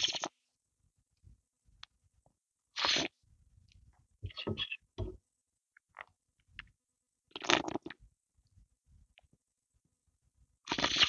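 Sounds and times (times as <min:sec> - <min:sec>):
slurping soup off a spoon: 0:02.8 - 0:03.1, 0:10.7 - 0:11.0
wet mouth noises: 0:07.3 - 0:08.0, 0:10.7 - 0:11.0.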